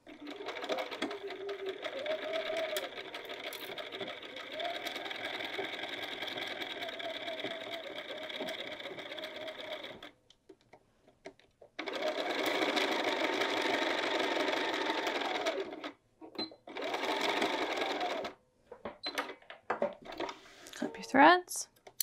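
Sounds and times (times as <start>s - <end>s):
sewing machine stitching: 0.0s - 10.1s, 11.8s - 18.4s.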